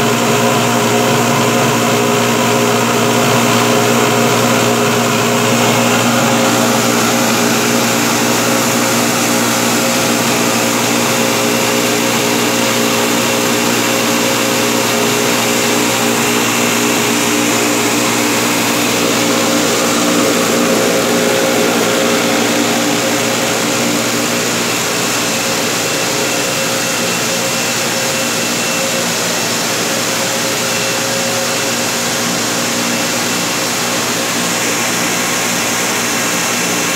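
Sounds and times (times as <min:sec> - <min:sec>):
loud industrial machinery hum: 0:00.0 - 0:36.9.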